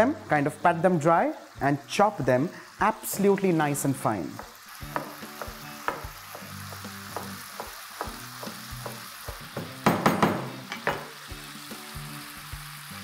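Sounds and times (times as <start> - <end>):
soft background music: 0.0 - 13.0
knife chopping on wooden board: 4.4 - 11.1.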